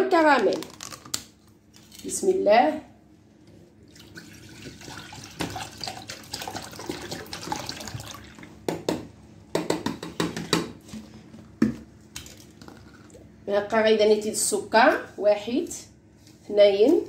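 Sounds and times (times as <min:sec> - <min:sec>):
milk pouring into saucepan: 0:03.9 - 0:08.6.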